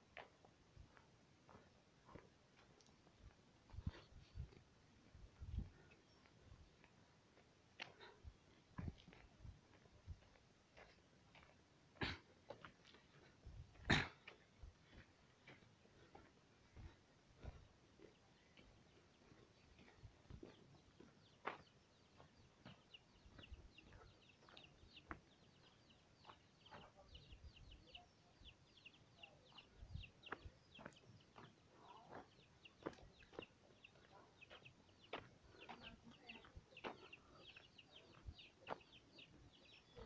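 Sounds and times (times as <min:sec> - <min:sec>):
birds chirping: 0:00.0 - 0:40.0.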